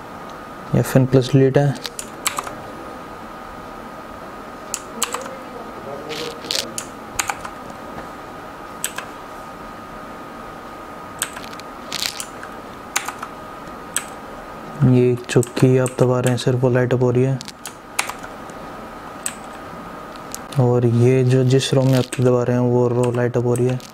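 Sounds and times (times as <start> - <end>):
mechanical keyboard keys clicking: 1.8 - 2.6, 13.0 - 13.3.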